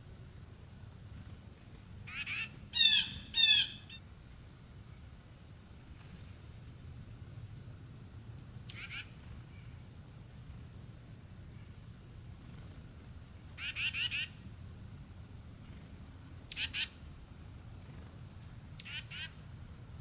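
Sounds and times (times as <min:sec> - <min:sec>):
birds harsh buzzy scolding calls: 0:02.0 - 0:04.0, 0:08.4 - 0:10.3, 0:13.5 - 0:14.5, 0:15.3 - 0:20.0.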